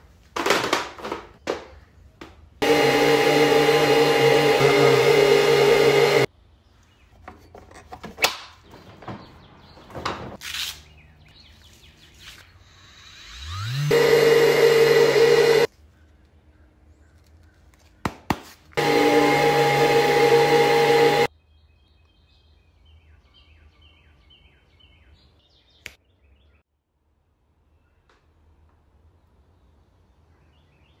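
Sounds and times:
orbital sander on wood: 0:02.6 - 0:06.3, 0:13.1 - 0:15.7, 0:18.8 - 0:21.3.

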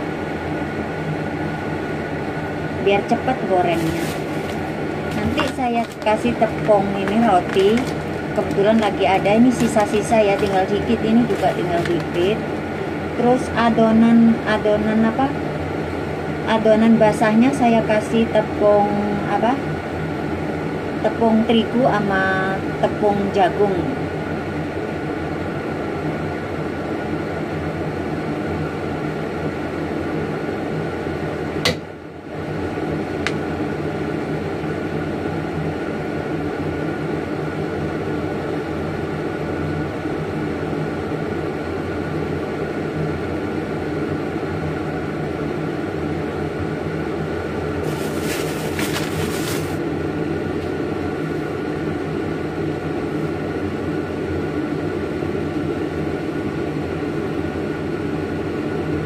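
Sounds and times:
electric appliance motor humming: 0:00.0 - 0:13.5, 0:45.1 - 0:51.8
short rustle: 0:47.8 - 0:49.8.

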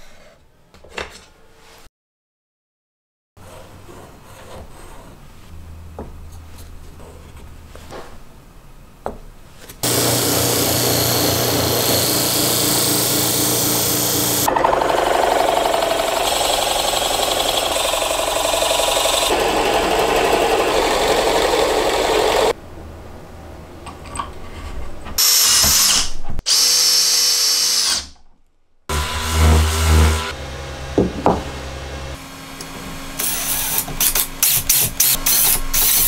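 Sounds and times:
power tool running: 0:09.8 - 0:22.6, 0:28.9 - 0:32.2, 0:33.1 - 0:36.0.

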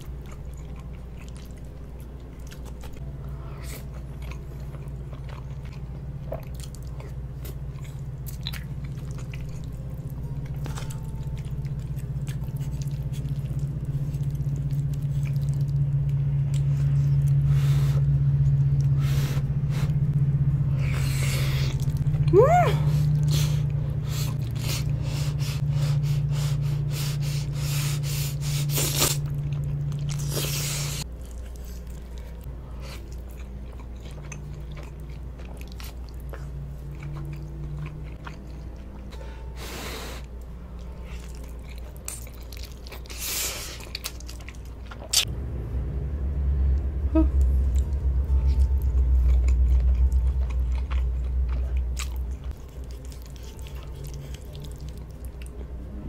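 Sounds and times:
wet chewing: 0:00.0 - 0:20.1, 0:20.8 - 0:39.3, 0:40.0 - 0:45.3, 0:47.4 - 0:55.9
steady low hum: 0:00.0 - 0:56.0
slurping noodles: 0:23.2 - 0:29.3.

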